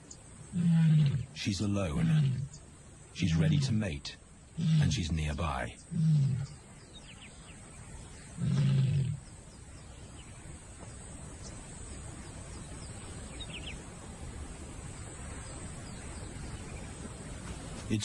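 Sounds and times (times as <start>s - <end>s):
faint bird chirps: 0.0s - 18.0s
outdoor ambience hiss: 0.0s - 18.0s
lion roaring: 0.5s - 2.5s, 3.2s - 3.8s, 4.6s - 5.2s, 5.9s - 6.6s, 8.3s - 9.2s.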